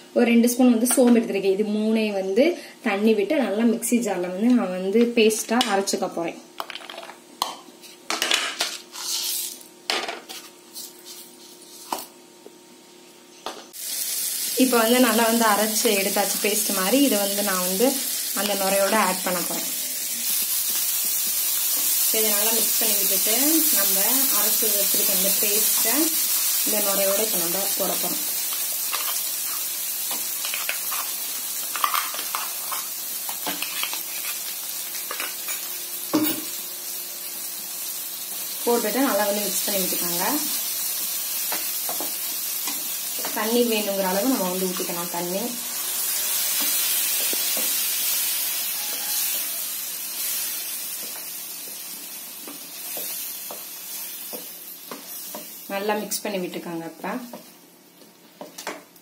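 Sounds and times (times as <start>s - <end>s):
meat sizzling in oil: 13.7s - 56.1s.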